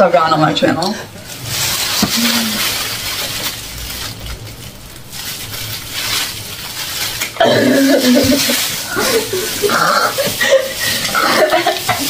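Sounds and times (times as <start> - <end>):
plastic bag crinkling: 1.2 - 12.0.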